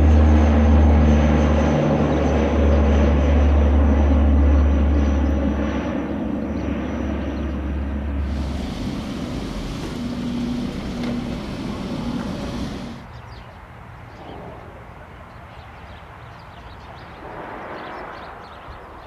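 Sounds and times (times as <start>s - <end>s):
aircraft engine rushing: 0.0s - 13.1s.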